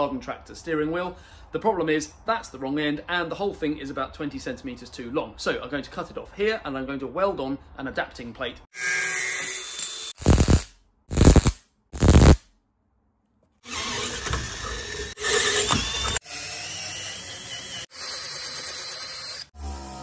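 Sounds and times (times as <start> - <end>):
arc welding bursts: 9.8 - 12.4
cordless drill running: 13.6 - 20.0.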